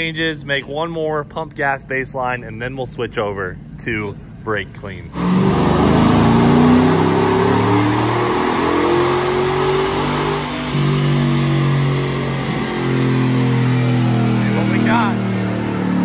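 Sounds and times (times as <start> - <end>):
engine at wide-open throttle: 5.1 - 16.0.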